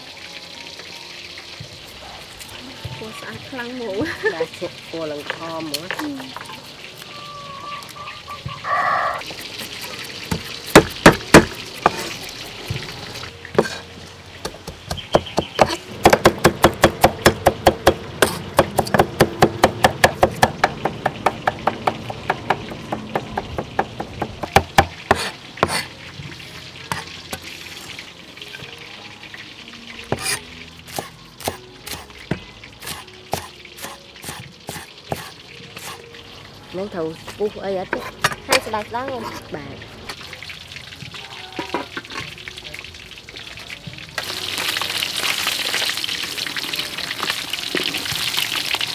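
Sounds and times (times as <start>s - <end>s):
cleaver chopping on wooden board: 10.3s - 12.0s, 14.4s - 25.8s.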